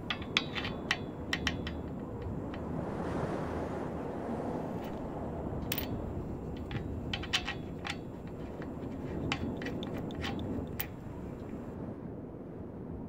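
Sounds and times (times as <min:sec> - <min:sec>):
metal parts clicking on steel plate: 0:00.0 - 0:02.8, 0:04.8 - 0:11.7.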